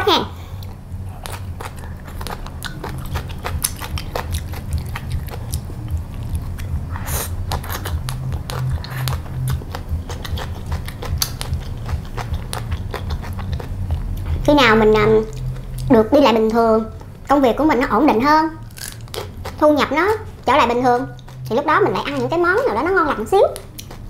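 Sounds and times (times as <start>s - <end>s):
person chewing crisp food: 0.5s - 16.0s, 18.6s - 19.6s, 20.2s - 22.3s, 23.6s - 24.0s.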